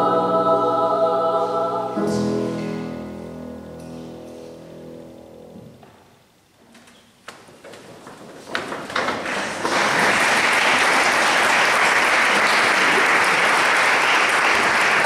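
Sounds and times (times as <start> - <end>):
audience applause: 8.8 - 15.0.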